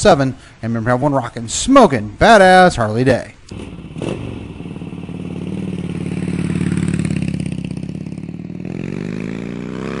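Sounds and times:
motorcycle engine revving: 0:03.5 - 0:10.0.

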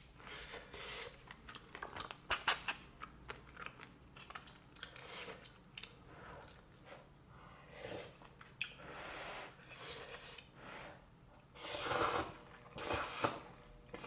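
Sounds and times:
noodles being slurped: 0:11.6 - 0:14.0.

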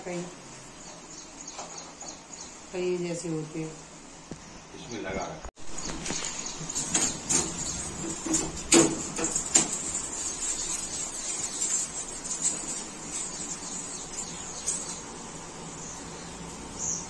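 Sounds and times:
steady high hiss: 0:00.0 - 0:17.0
fridge shelves clicking and knocking: 0:06.6 - 0:10.2.

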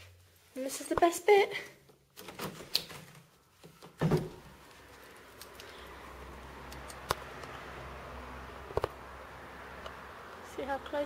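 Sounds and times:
handling clicks and rustles: 0:01.8 - 0:05.9
dull thump: 0:04.0 - 0:04.4.

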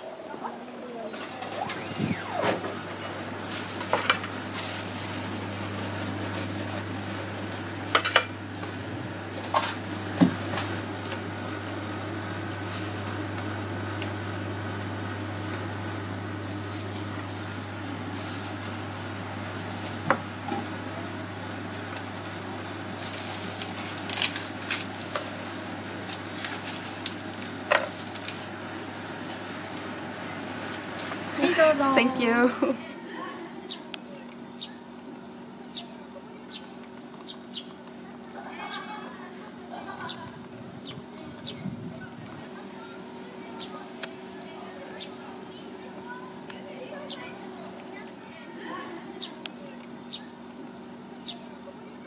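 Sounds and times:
steady low hum: 0:00.4 - 0:52.0.

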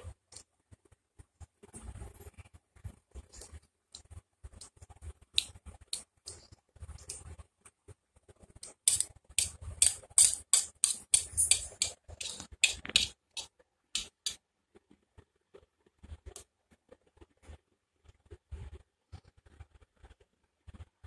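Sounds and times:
fork clinking on steel plate: 0:08.9 - 0:13.1.

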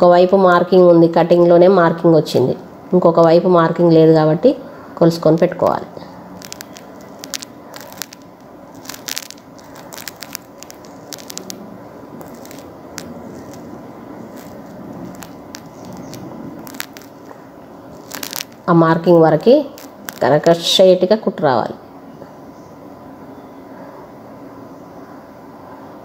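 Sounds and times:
small clicks and ticks: 0:06.3 - 0:11.6, 0:12.2 - 0:18.7, 0:19.4 - 0:20.6.

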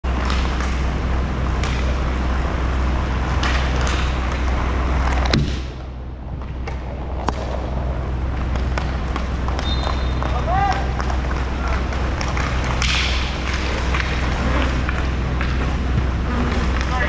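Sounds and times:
steady low rumble: 0:00.0 - 0:17.0
clicks of sticks and puck: 0:00.1 - 0:00.8, 0:01.5 - 0:01.9, 0:03.4 - 0:05.6, 0:08.6 - 0:15.8
skate wheels rolling: 0:00.1 - 0:17.0
sharp knocks: 0:05.3 - 0:05.8.

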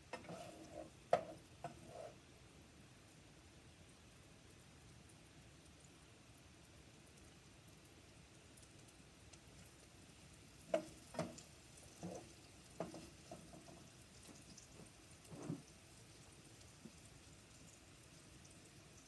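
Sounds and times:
spoon scraping and knocking pot: 0:00.1 - 0:02.2, 0:15.3 - 0:15.6.

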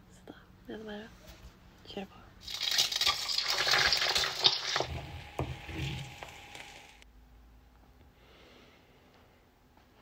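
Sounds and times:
egg sizzling in hot oil: 0:02.4 - 0:07.0.

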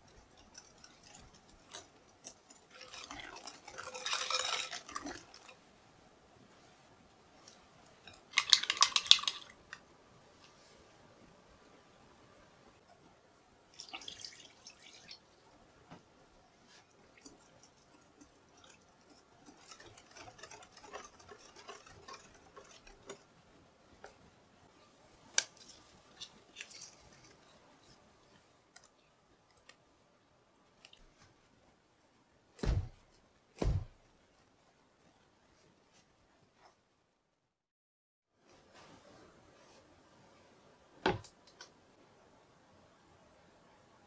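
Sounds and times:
batter scraping in glass bowl: 0:00.3 - 0:05.5, 0:17.2 - 0:23.2.

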